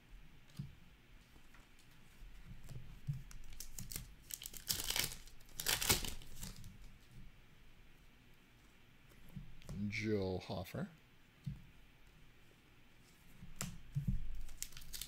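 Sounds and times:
foil wrapper tearing and crinkling: 0:03.4 - 0:06.7, 0:14.3 - 0:15.0.

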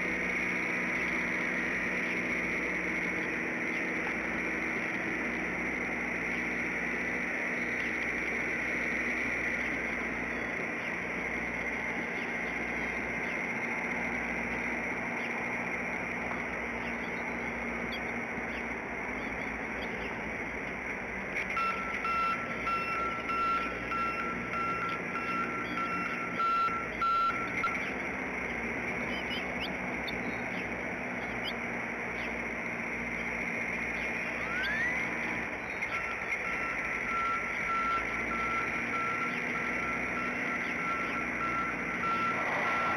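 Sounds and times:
vehicle reversing beeper: 0:00.0 - 0:20.6, 0:21.3 - 0:42.9
faint bird chirps: 0:06.2 - 0:13.6, 0:16.4 - 0:20.3, 0:21.4 - 0:42.9.

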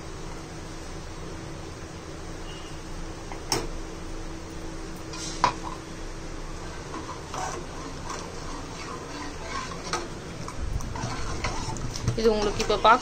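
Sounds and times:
ladle scraping against pot: 0:05.1 - 0:05.8, 0:06.7 - 0:13.0
ladle stirring batter: 0:06.6 - 0:13.0.

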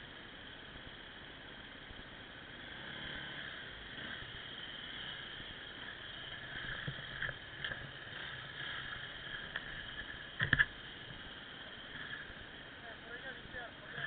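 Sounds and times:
muffled motorcycle running: 0:00.0 - 0:14.0.

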